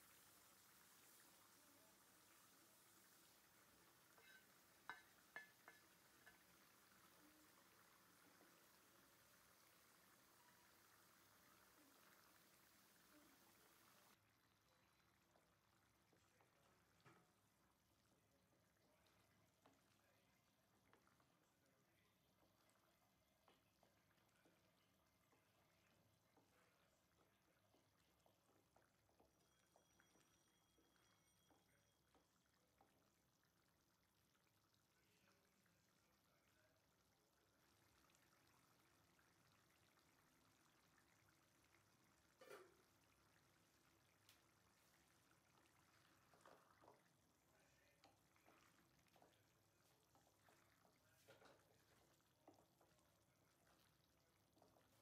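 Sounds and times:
spatula stirring in steel pan: 3.8 - 7.2.

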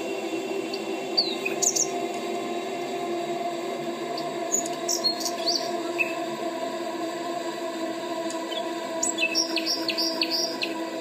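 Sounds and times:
steady low hum: 0.0 - 11.0
birds chirping and whistling: 0.7 - 2.0, 4.1 - 6.2, 8.4 - 10.8.

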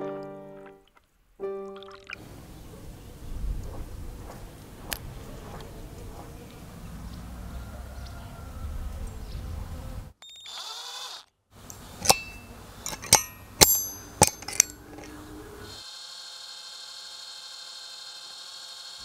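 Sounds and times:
electric drill boring metal: 10.3 - 11.3, 12.0 - 19.0
hammer tapping metal punch: 12.0 - 15.1.

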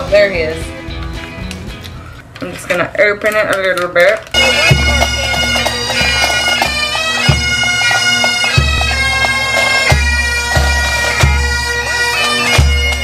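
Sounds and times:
bagpipes playing melody over drone: 4.3 - 13.0
bass drum beat: 4.4 - 11.5.

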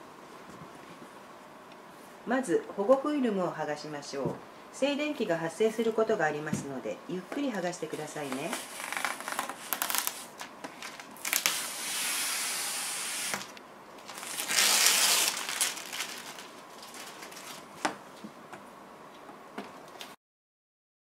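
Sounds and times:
plastic film peeling: 8.0 - 18.0.

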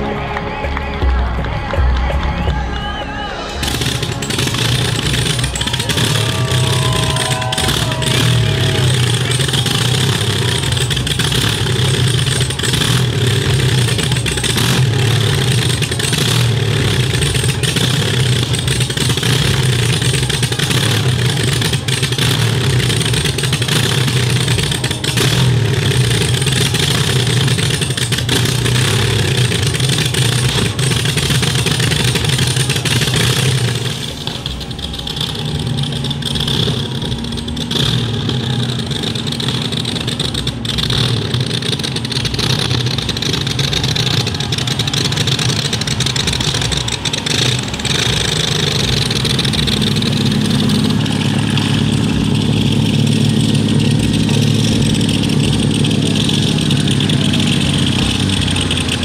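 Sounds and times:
boat engine running: 0.0 - 59.0.

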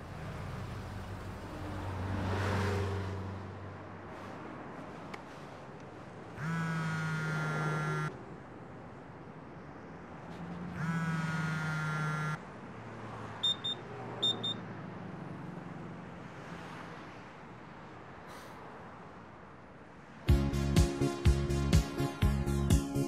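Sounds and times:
traffic noise: 0.0 - 20.4
low horn-like tone: 6.4 - 8.1.

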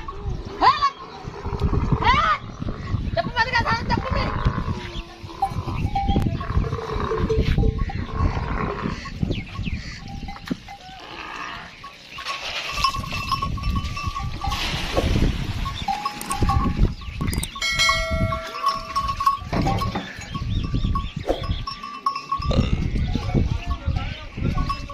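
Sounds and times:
animals shuffling and drinking: 3.3 - 24.9
metal bell clanking: 11.8 - 14.8, 15.6 - 24.9.

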